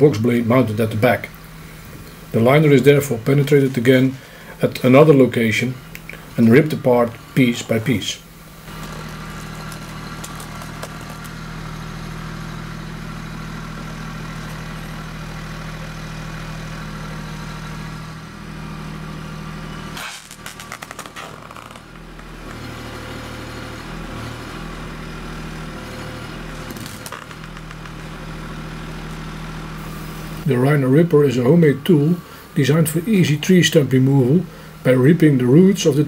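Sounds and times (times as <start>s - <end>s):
tractor diesel engine running: 0.0s - 36.0s
sharp clatter: 8.7s - 11.4s, 20.0s - 22.7s, 26.6s - 28.2s.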